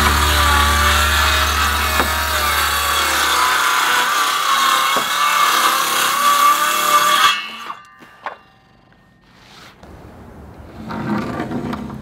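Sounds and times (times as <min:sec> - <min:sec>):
circular saw cutting wood: 0:00.0 - 0:08.8.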